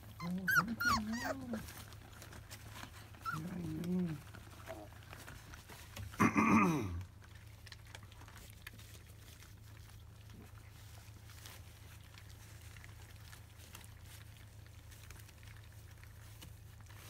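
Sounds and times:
puppy whining: 0.0 - 5.7
puppies lapping food: 0.0 - 6.2, 7.0 - 17.0.

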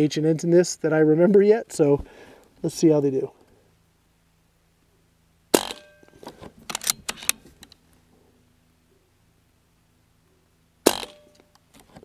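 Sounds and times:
faint steady background: 0.0 - 12.0
air rifle action clicking: 5.6 - 7.8.

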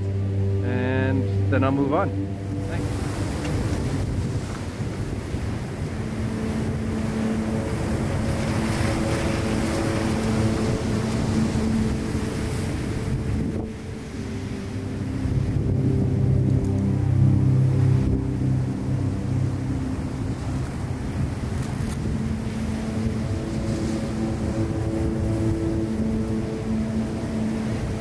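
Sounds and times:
wind on microphone: 0.0 - 28.0
surf breaking over rocks: 2.6 - 15.7.

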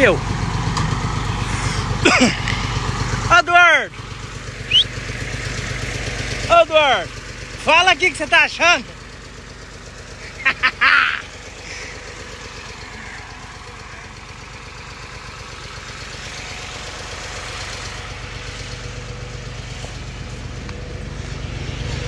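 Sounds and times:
tractor engines running: 0.0 - 22.0.

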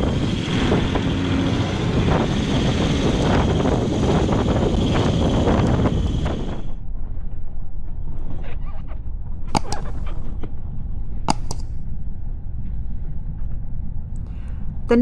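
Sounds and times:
wind buffeting microphone: 0.0 - 7.2
sharp clicks: 9.6 - 9.8, 11.3 - 11.7.

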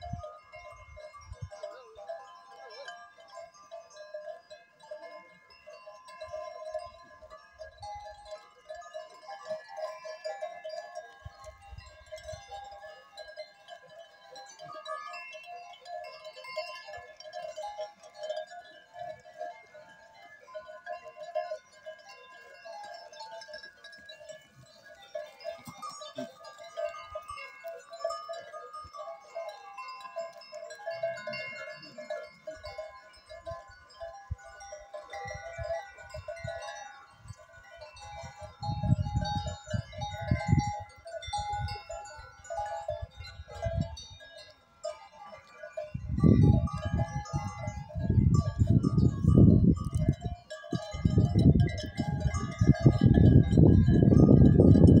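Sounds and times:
animal bells jingling: 0.0 - 55.0
wind buffeting microphone: 38.4 - 41.8, 45.9 - 55.0.

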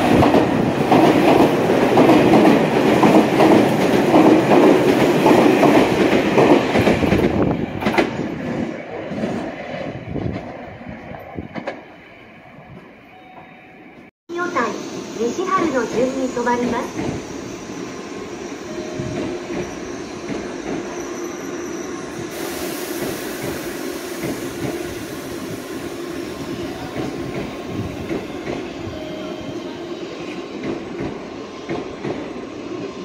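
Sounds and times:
train whine: 0.0 - 33.0
wheel squeal: 17.0 - 22.3.

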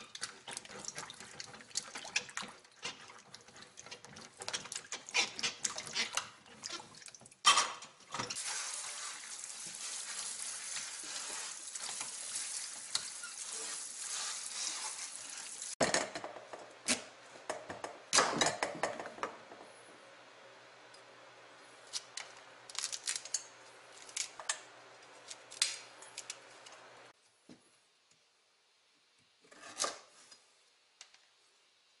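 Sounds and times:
fruit washed in a metal bowl: 0.0 - 7.5, 8.1 - 15.8
tap water running: 0.0 - 7.5, 8.1 - 15.8.

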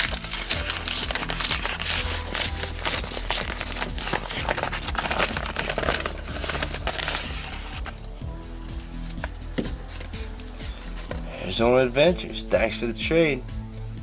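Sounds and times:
paper envelope crinkling: 0.0 - 8.1
background music with bass: 0.0 - 14.0.

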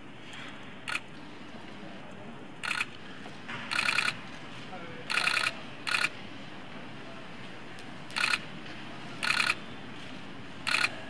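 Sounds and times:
steady background hum: 0.0 - 11.0
rapid camera shutter clicks: 2.6 - 2.9, 3.7 - 4.2, 5.1 - 6.1, 8.1 - 8.4, 9.2 - 9.6, 10.7 - 11.0.

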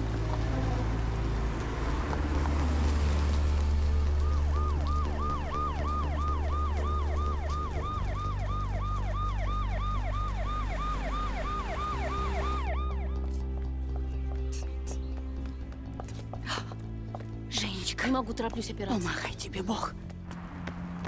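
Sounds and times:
police siren yelping: 4.1 - 13.4.

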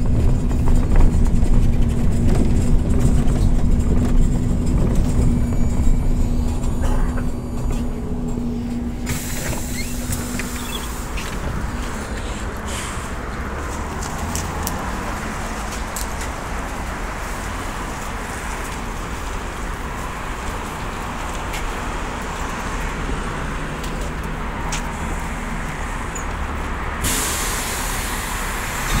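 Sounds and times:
street noise: 0.0 - 29.0
trolleybus humming: 0.0 - 29.0
hiss of released air: 9.0 - 11.3, 27.0 - 29.0.

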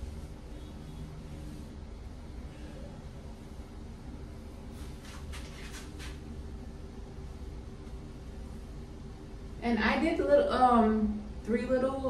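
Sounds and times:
low room hum: 0.0 - 12.0
fingers rustling through hair: 4.6 - 6.3.

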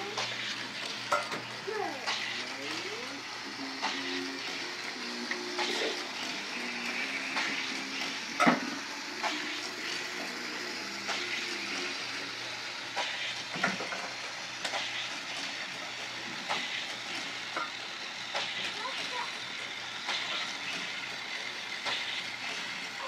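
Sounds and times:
toy trains running on track: 0.0 - 23.0
clicks and clacks: 12.9 - 15.5.

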